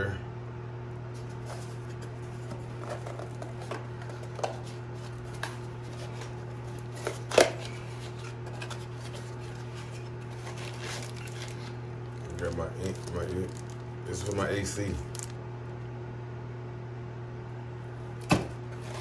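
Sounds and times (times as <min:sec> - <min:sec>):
cardboard box crinkling: 0:08.0 - 0:13.8
loud cardboard crackle: 0:10.2 - 0:13.8.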